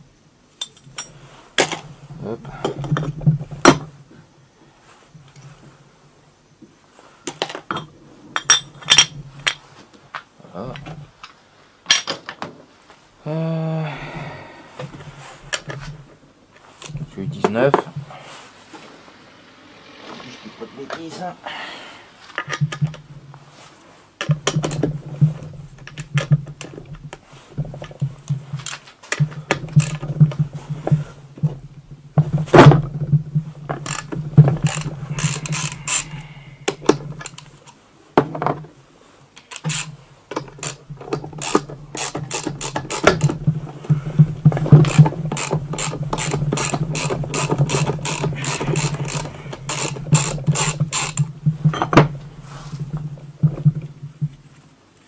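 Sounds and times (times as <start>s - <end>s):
metal tools clinking: 7.7s - 9.6s
ratchet wrench clicking: 33.8s - 37.4s, 41.4s - 43.4s, 44.8s - 51.3s.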